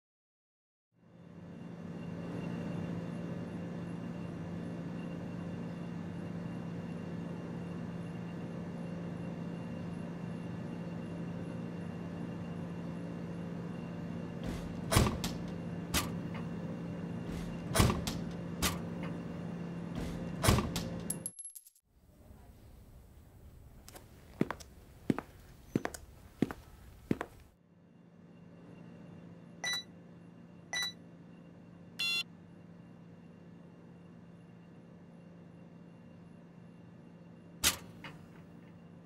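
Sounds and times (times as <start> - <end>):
vending machine humming: 1.1 - 21.3, 22.0 - 39.0
knocks and clunks at machine: 14.4 - 16.5, 17.2 - 19.2, 19.9 - 21.0.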